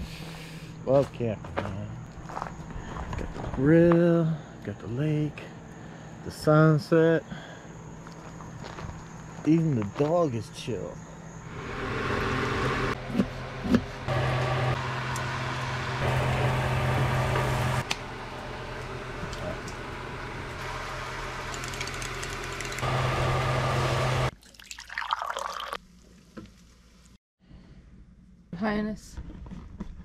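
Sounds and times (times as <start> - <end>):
low hum: 11.4 - 24.3
sharp clicks: 21.4 - 22.8.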